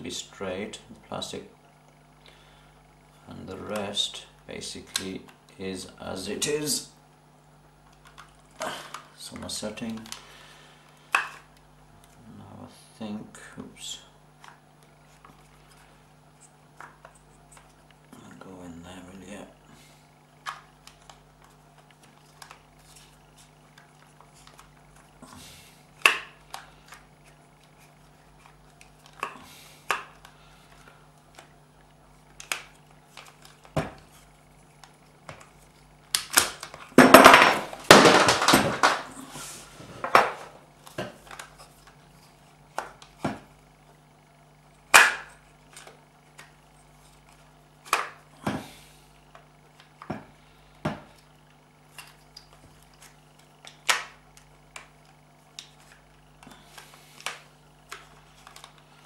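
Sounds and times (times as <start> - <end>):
faint steady hum: 0.0 - 59.0.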